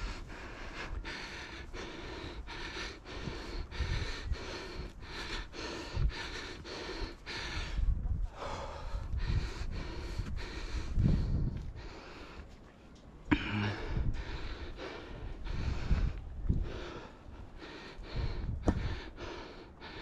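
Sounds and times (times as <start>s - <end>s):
person panting through a mask: 0.0s - 12.5s, 13.3s - 20.0s.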